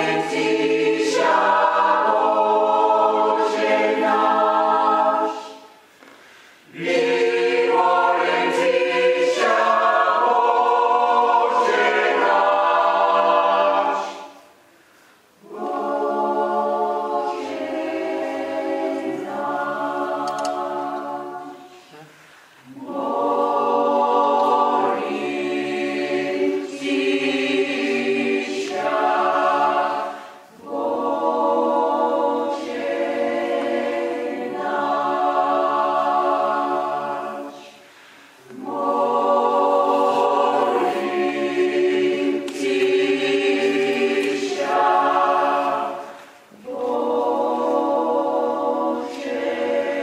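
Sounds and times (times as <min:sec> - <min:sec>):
choir singing a hymn: 0:00.0 - 0:05.9, 0:06.5 - 0:21.9, 0:22.6 - 0:50.0
breath: 0:05.9 - 0:06.7, 0:14.7 - 0:15.3, 0:22.0 - 0:22.6, 0:37.8 - 0:38.4.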